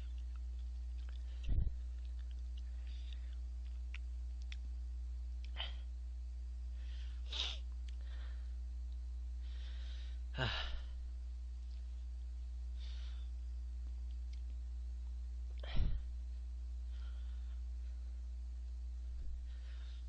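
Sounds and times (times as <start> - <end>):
low electrical hum: 0.0 - 20.0
man sighing: 10.3 - 11.0.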